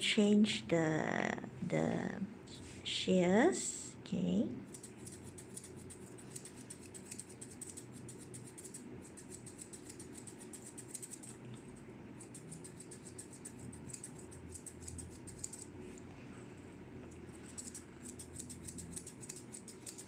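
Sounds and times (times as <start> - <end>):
shears snipping fur: 4.6 - 11.4, 12.2 - 16.0, 17.4 - 20.0.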